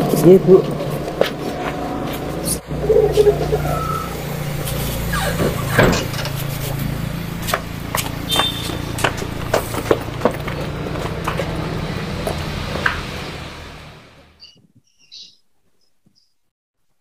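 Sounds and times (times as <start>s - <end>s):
footsteps: 0.0s - 3.3s, 4.6s - 13.3s
low engine hum: 0.0s - 14.4s.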